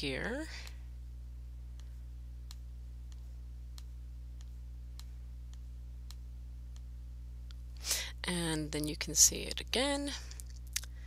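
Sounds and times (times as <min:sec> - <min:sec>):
steady low hum: 0:00.0 - 0:11.0
computer mouse clicks: 0:01.7 - 0:06.9.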